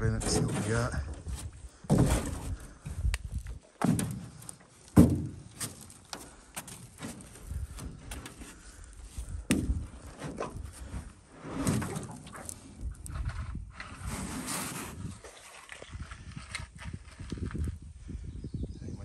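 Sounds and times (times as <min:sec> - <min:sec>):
footsteps thumping on metal boat hull: 0:03.8 - 0:05.9.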